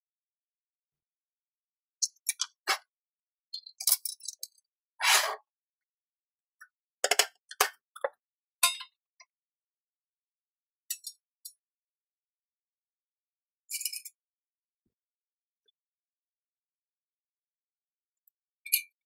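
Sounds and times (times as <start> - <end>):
metal scrape: 5.0 - 5.4.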